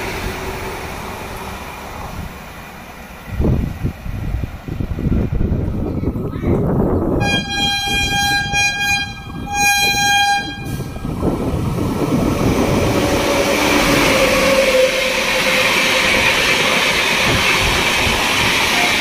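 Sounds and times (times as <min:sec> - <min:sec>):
train rumbling past: 0:00.0 - 0:19.0
train horn blasts: 0:07.2 - 0:11.0.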